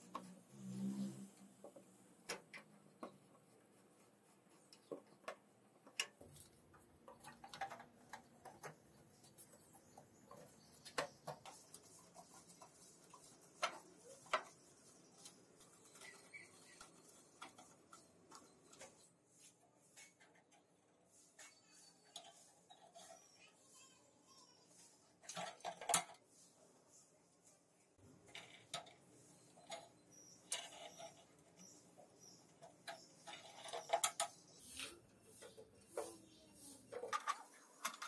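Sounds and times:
small tools clicking and tapping: 4.6s - 19.1s, 25.2s - 26.2s, 28.3s - 36.2s, 36.9s - 38.0s.

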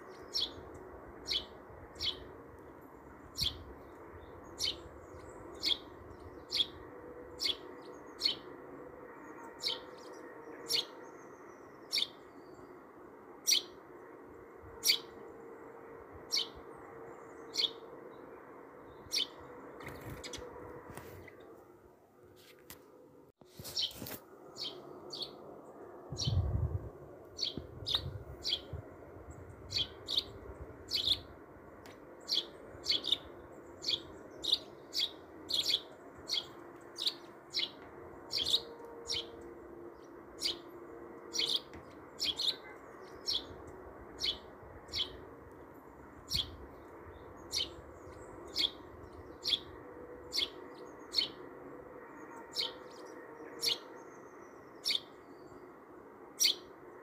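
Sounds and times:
bird chirping: 0.0s - 2.3s, 23.6s - 25.4s, 32.2s - 40.7s, 41.3s - 51.5s, 56.4s - 56.7s.

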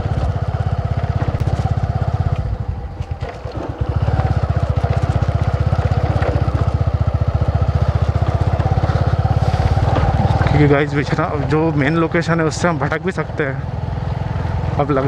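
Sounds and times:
motorcycle engine thudding: 0.0s - 11.8s.

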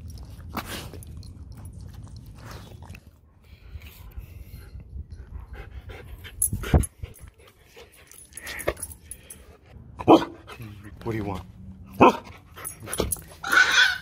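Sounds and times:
dog panting: 5.2s - 9.7s.

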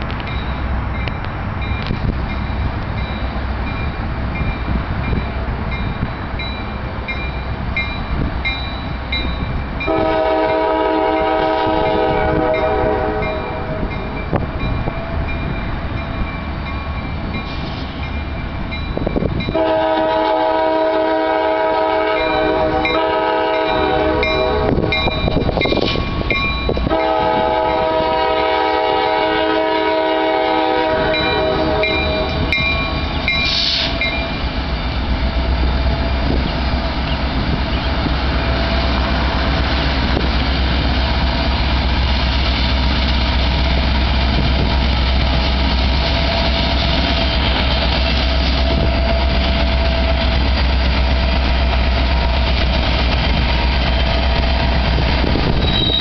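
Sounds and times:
crossing bell ringing: 0.2s - 20.4s, 21.9s - 37.8s, 42.8s - 56.0s
locomotive air horn blasts: 9.9s - 13.9s, 19.5s - 25.0s, 26.8s - 32.4s.

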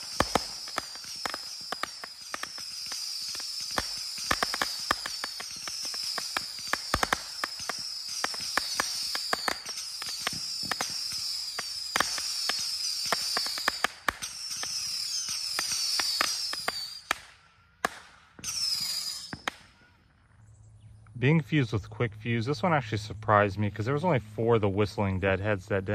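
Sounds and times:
firework pops and cracks: 0.0s - 19.8s
firework whistles: 0.0s - 20.1s.

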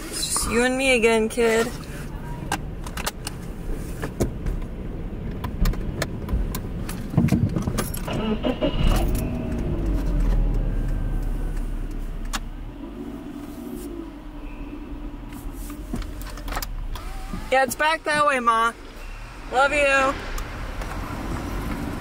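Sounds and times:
car engine and road rumble: 0.0s - 22.0s
short wavering tone: 14.3s - 15.3s.

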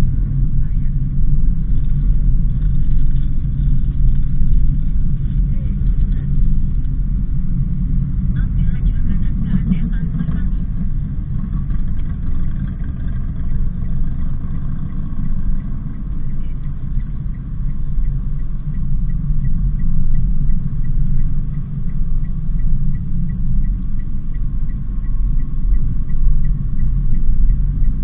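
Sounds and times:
road and engine rumble: 0.0s - 28.0s
faint even ticking: 8.3s - 28.0s.

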